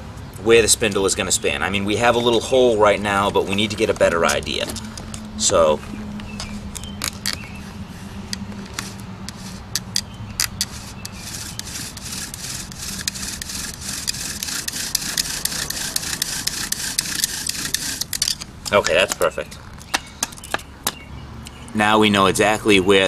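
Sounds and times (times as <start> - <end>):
wooden spindle rasping: 2.0 - 5.7, 6.7 - 18.8.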